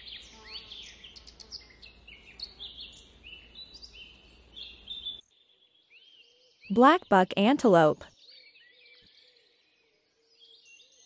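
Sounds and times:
small birds chirping: 0.0 - 7.4.

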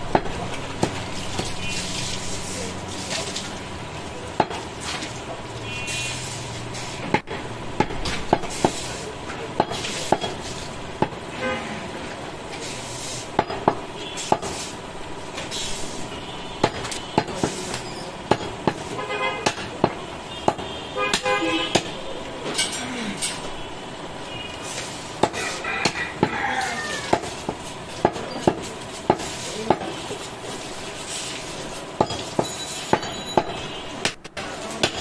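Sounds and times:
street traffic: 0.0 - 35.0
vehicle horns: 1.5 - 2.0, 5.6 - 6.3, 11.3 - 11.9, 14.0 - 14.3, 16.1 - 17.3, 18.9 - 19.6, 20.2 - 22.1, 23.5 - 24.7, 32.6 - 34.2
cleaver chopping meat and bone: 25.2 - 30.0.

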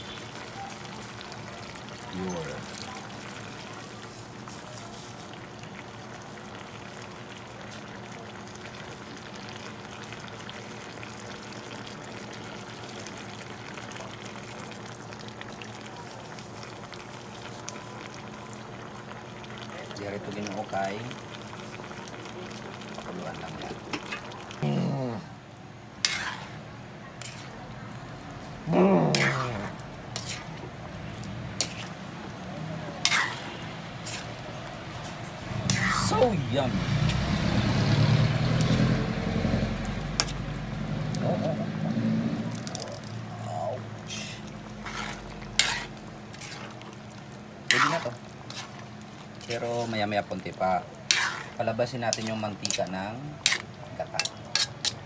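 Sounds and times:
wok simmering with hiss and crackle: 0.0 - 55.0
metal spoon scraping a wok: 26.0 - 26.6, 27.2 - 27.6, 29.1 - 30.6, 31.6 - 32.0, 33.0 - 34.4, 40.2 - 40.4, 44.1 - 46.8, 47.7 - 48.8, 51.0 - 55.0
coconut milk being poured: 29.2 - 54.5.

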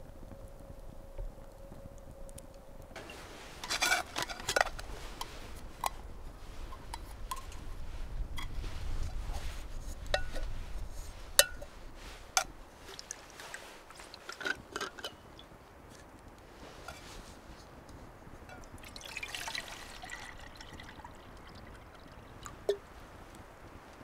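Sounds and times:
flask and metal cup handled: 3.0 - 15.3, 18.5 - 20.9.

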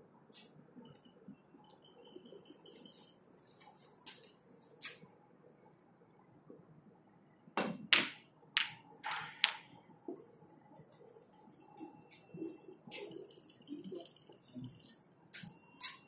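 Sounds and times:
snooker balls clacking: 7.6 - 9.7.

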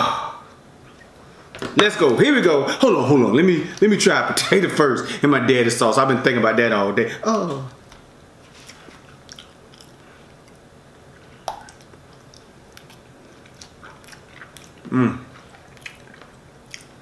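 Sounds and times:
short hum-like vocal sound: 0.0 - 0.6, 7.1 - 7.8, 14.7 - 15.7
mouth chewing wet smacks: 8.6 - 17.0.

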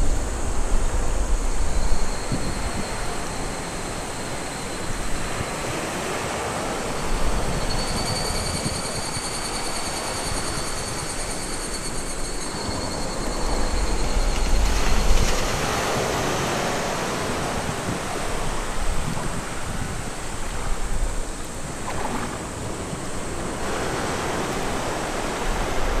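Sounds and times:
waves splashing against boulder: 14.4 - 26.0
small waves breaking on beach: 14.6 - 26.0.

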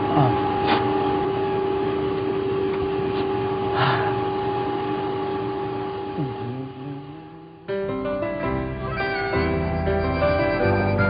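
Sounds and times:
film projector humming and whirring: 0.0 - 7.7.

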